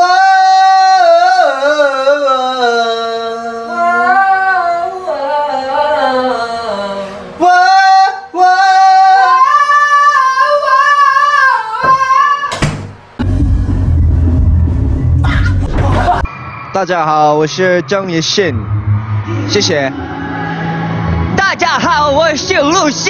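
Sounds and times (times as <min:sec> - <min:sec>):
man singing with vibrato: 0:00.0 - 0:12.6
bass-heavy sound: 0:13.2 - 0:16.3, 0:18.1 - 0:22.7.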